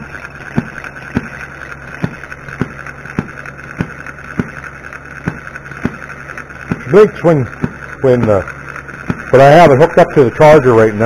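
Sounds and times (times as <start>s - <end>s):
model engine popping: 0.0s - 11.0s
steady high hum: 0.0s - 11.0s.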